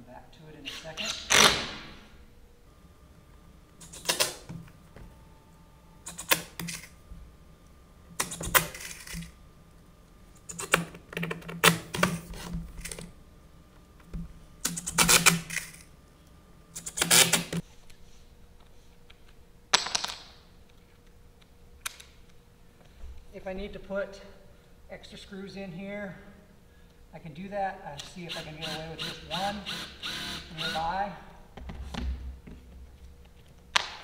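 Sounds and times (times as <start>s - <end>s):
cordless drill driving screws: 28.6s - 30.8s.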